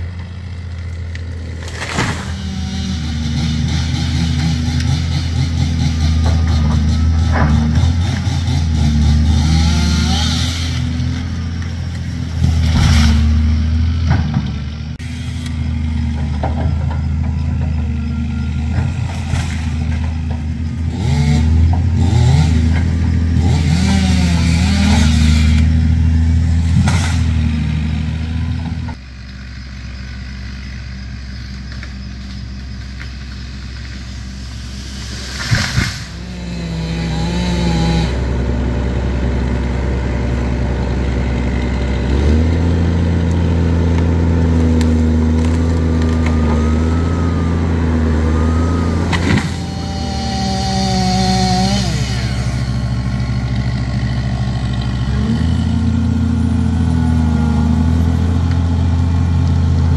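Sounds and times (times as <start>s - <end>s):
wood cracking: 0.0s - 2.4s, 41.3s - 49.7s
excavator diesel engine under load: 0.0s - 59.9s.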